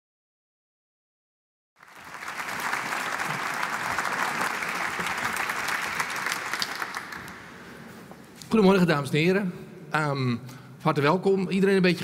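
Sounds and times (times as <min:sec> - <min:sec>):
audience applauding: 0:01.8 - 0:07.8.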